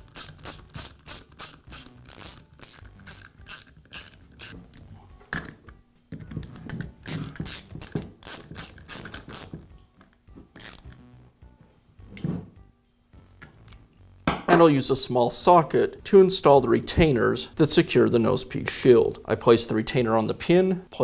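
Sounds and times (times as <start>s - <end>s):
hand ratchet clicking: 0.0s - 4.6s, 6.6s - 9.6s, 10.6s - 11.0s.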